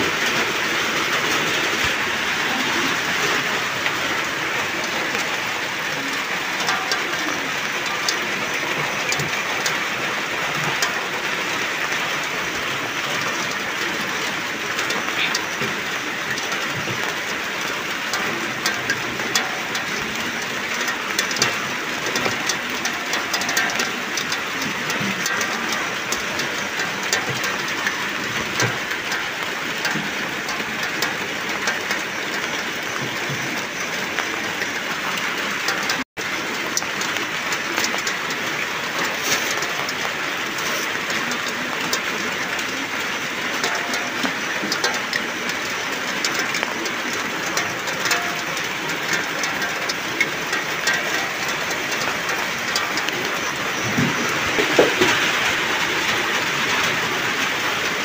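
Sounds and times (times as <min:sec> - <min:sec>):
steady rain falling: 0:00.0 - 0:58.0
sharp drop ticks: 0:06.0 - 0:09.8, 0:13.2 - 0:36.0, 0:39.0 - 0:55.9.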